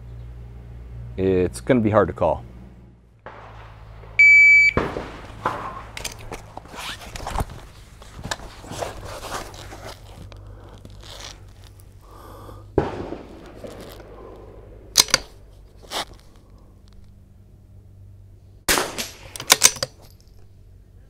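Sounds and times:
rustling and scuffing on mat: 5.3s - 11.9s
clicks of gear handled: 5.9s - 11.9s, 15.0s - 17.0s, 19.3s - 20.4s.

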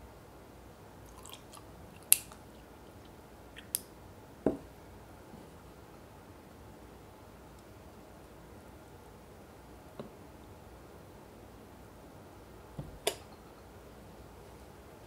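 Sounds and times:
milk pouring: 1.0s - 2.1s.

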